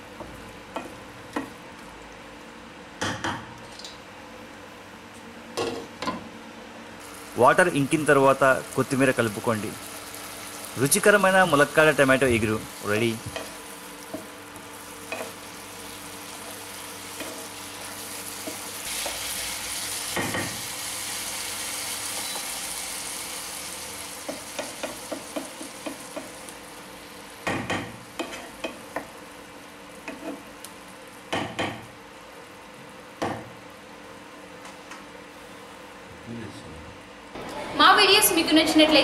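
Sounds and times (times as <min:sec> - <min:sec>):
curry sizzling in a wok: 0:07.0 - 0:32.7.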